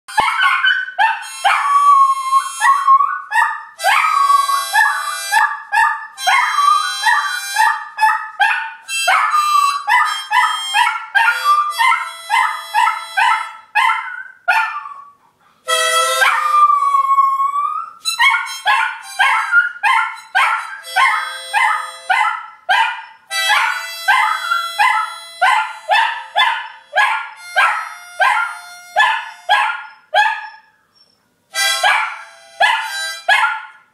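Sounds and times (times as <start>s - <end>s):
dog howling: 0.2s - 7.8s, 16.1s - 22.4s
harmonica short notes: 1.2s - 3.1s, 4.1s - 5.5s, 6.2s - 7.8s, 8.9s - 13.6s, 15.7s - 17.0s, 18.0s - 22.1s, 23.3s - 29.5s, 31.5s - 33.3s.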